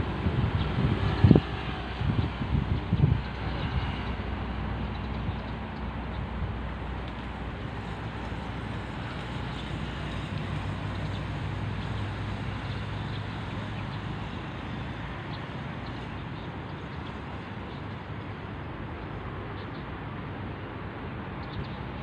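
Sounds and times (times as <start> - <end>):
wind on microphone: 0.0 - 16.1
road traffic noise: 0.0 - 22.0.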